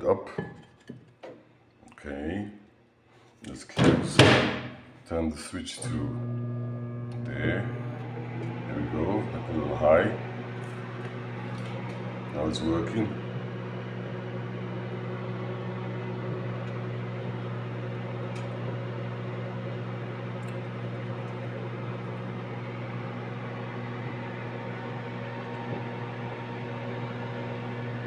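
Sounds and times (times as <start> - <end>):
microwave oven humming: 5.8 - 28.0.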